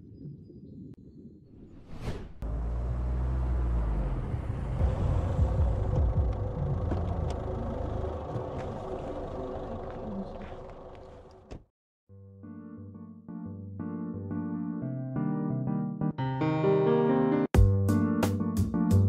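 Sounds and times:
car engine rumbling: 0:02.4 - 0:11.6.

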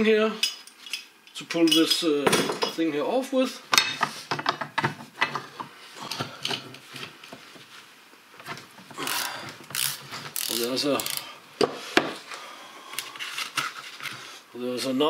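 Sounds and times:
ratchet wrench clicking: 0:09.1 - 0:11.2.

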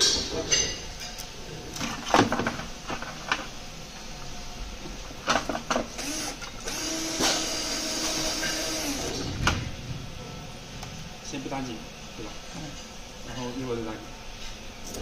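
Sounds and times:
cordless drill motor running: 0:06.0 - 0:09.2.

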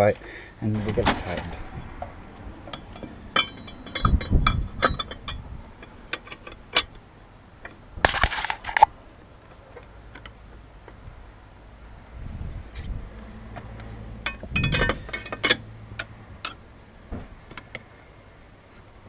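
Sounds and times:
metal tools clinking: 0:02.7 - 0:06.9, 0:14.3 - 0:15.6.

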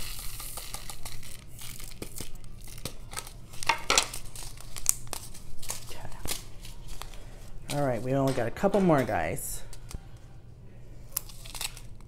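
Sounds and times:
plastic pouch crinkling: 0:00.0 - 0:07.6, 0:11.1 - 0:12.0.

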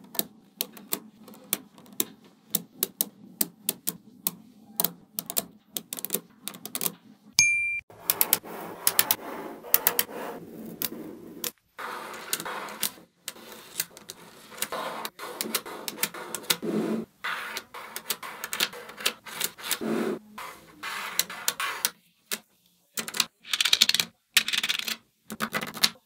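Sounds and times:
magnetic balls clicking together: 0:00.0 - 0:07.0, 0:23.0 - 0:26.0.

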